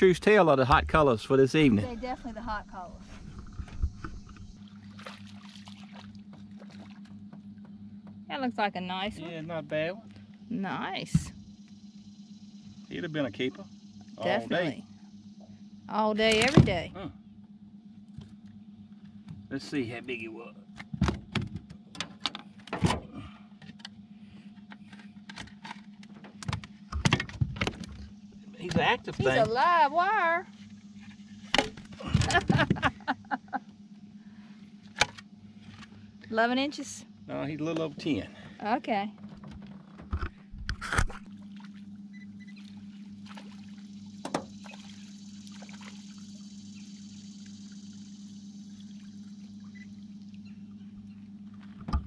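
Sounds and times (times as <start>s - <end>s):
steady low hum: 0.0s - 52.0s
water trickling: 41.3s - 50.8s.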